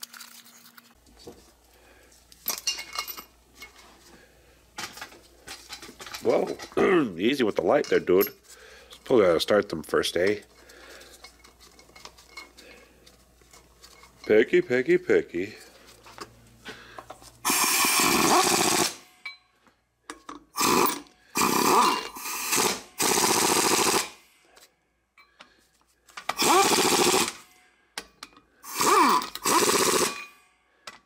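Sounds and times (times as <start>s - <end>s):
impact wrench bursts: 17.4s - 19.1s, 20.5s - 24.3s, 26.3s - 27.6s, 28.6s - 30.4s.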